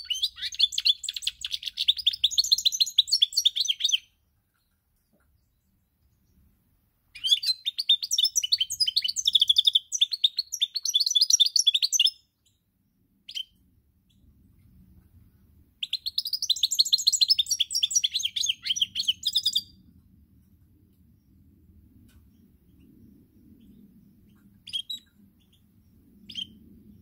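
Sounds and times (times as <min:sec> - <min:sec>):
goldfinch twittering song: 0:00.0 - 0:04.7, 0:07.2 - 0:12.6, 0:15.8 - 0:19.8, 0:26.2 - 0:26.6.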